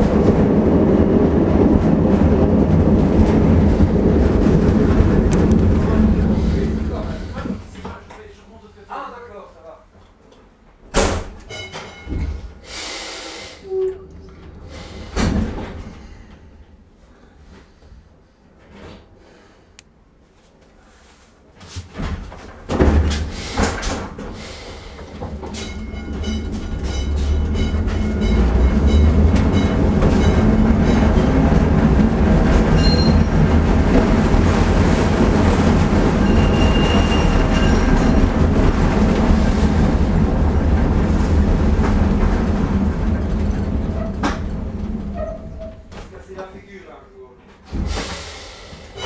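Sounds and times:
rail clicks: 0.0 - 8.3, 22.3 - 46.6
tram wheels rumbling on rails: 0.0 - 8.5, 13.4 - 19.5, 21.7 - 49.0
tram knocks: 22.3 - 46.1.

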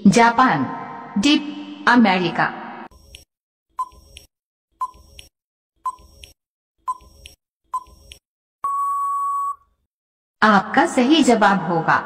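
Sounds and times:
short electronic beeps: 5.8 - 6.2, 7.8 - 8.0, 8.6 - 9.6.

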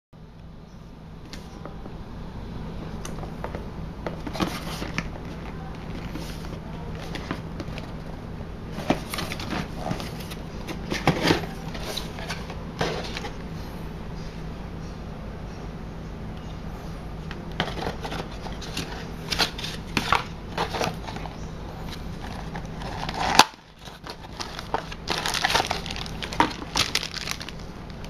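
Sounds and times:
steady low hum: 0.2 - 28.0
cardboard rustling and tapping: 3.2 - 8.2, 8.8 - 13.4.

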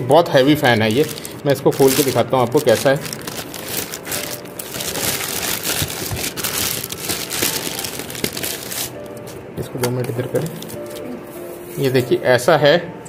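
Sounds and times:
plastic bag crinkling: 0.7 - 9.4, 10.3 - 11.1.

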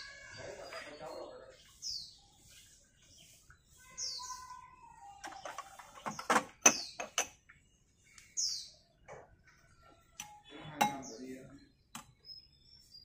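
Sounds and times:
bird chirping: 0.0 - 13.0
ladle and bowls clinking: 10.2 - 11.1.

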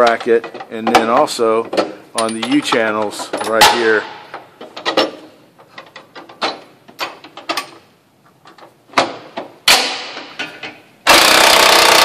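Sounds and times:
metal parts clinking and knocking: 0.0 - 7.8.

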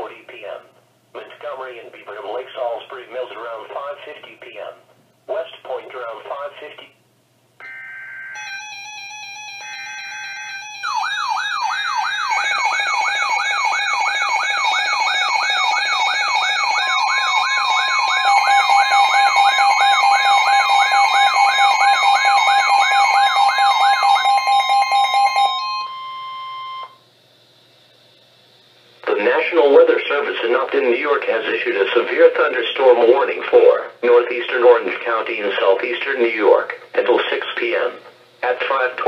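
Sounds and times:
buzzy coded data bursts: 7.6 - 25.5
fast warbling siren: 7.6 - 27.0
steady beeping tones: 7.6 - 27.0
long steady alert tone: 7.6 - 27.1.

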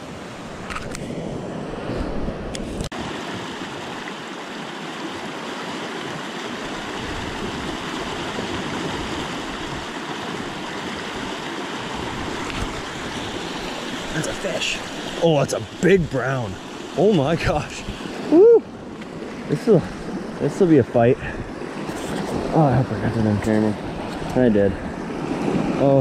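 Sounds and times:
river rushing over stones: 2.9 - 18.8.

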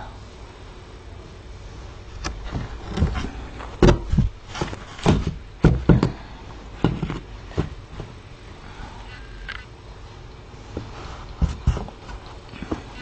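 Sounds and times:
fabric rustling: 1.6 - 5.7
handling thumps and knocks: 2.2 - 8.3, 10.7 - 13.0.

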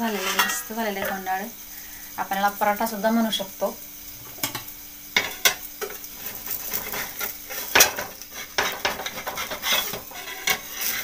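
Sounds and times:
metal spatula scraping iron pan: 0.0 - 1.2, 5.2 - 11.0
oil sizzling: 0.0 - 11.0.

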